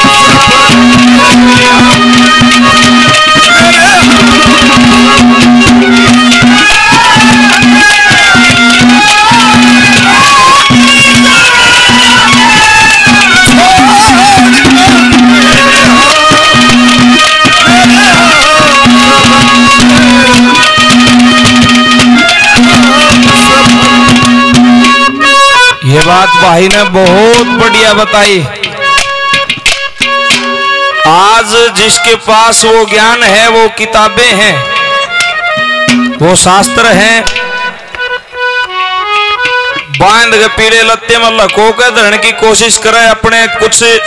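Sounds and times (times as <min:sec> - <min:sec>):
hand drum beating: 0:00.0 - 0:31.3, 0:34.4 - 0:37.6
held reed chords: 0:00.0 - 0:44.0
wavering melody line: 0:00.0 - 0:44.0.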